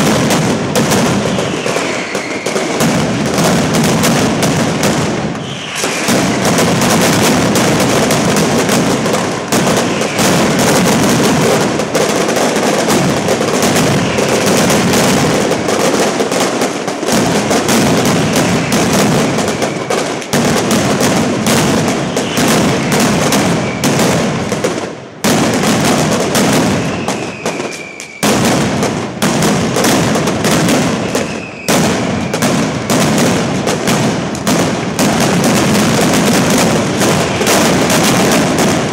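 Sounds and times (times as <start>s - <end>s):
firecracker bangs: 0.0s - 38.9s
falling whistles: 1.2s - 2.9s, 5.4s - 6.6s, 9.8s - 10.6s, 22.0s - 24.1s, 26.7s - 28.3s, 31.1s - 32.4s.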